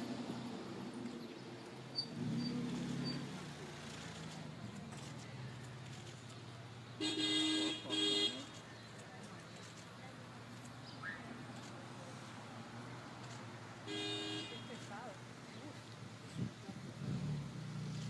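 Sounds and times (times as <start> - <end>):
vehicle horn toots: 7.0 - 8.5, 13.9 - 14.8.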